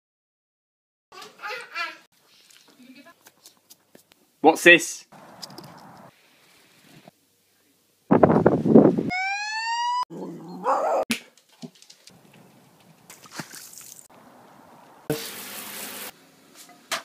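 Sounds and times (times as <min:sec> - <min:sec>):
puppy howling: 0:09.1 - 0:11.1.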